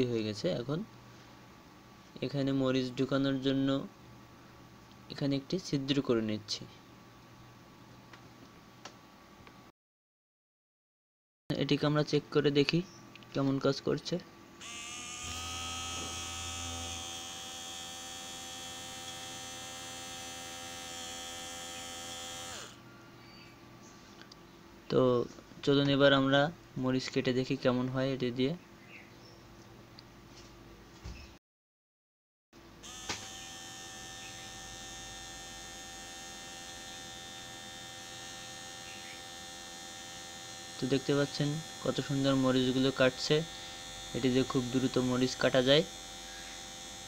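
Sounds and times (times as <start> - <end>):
small motor whine: 14.6 - 22.8, 32.8 - 47.0.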